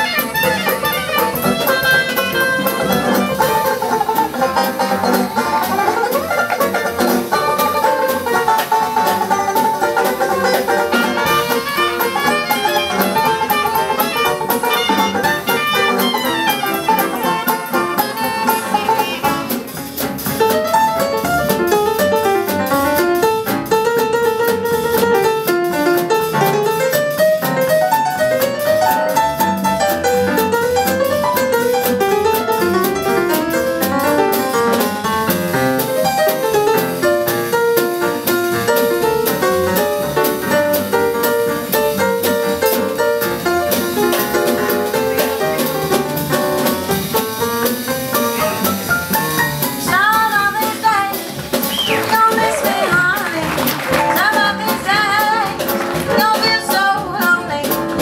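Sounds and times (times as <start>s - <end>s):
trumpet lead: 0.0s - 9.3s, 9.9s - 19.8s
banjo: 0.0s - 58.0s
drum: 0.0s - 58.0s
upright bass: 0.0s - 58.0s.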